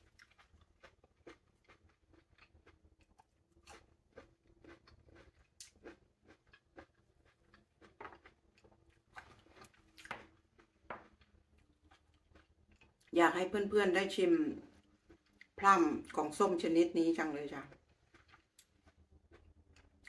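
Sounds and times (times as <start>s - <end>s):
person biting and chewing plum: 0.0s - 13.1s, 17.7s - 20.0s.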